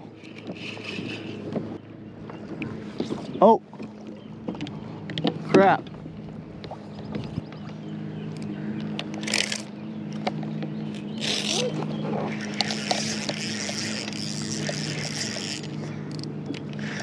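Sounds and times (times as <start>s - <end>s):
steady low drone: 0.0s - 17.0s
fishing reel whirring: 0.2s - 1.5s, 9.1s - 10.2s, 10.8s - 17.0s.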